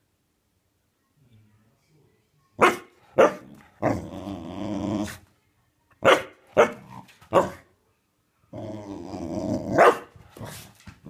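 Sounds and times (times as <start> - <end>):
dog barking: 2.6 - 3.5, 6.0 - 7.7, 9.7 - 10.6.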